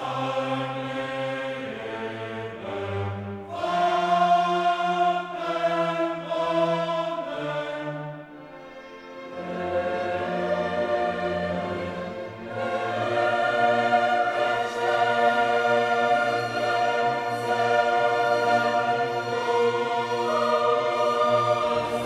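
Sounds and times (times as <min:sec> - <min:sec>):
choir singing held chords: 0:00.0 - 0:22.0
orchestra playing: 0:07.5 - 0:22.0.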